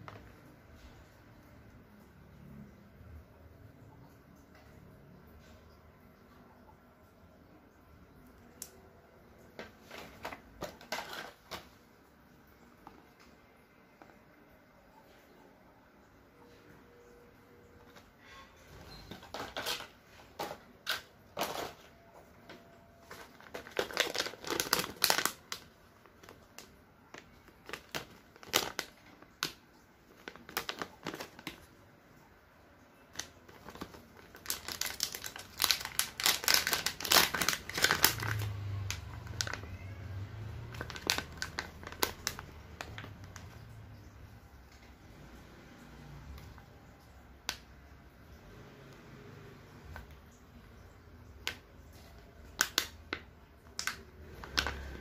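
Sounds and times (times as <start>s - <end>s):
plastic pouch crinkling: 9.6s - 11.8s, 18.8s - 31.8s, 33.0s - 39.9s, 40.6s - 44.1s, 51.4s - 55.0s.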